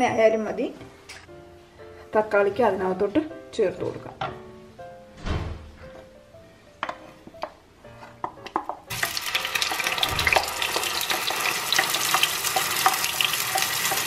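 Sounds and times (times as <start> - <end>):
sauce sizzling in hot oil: 8.9 - 14.0.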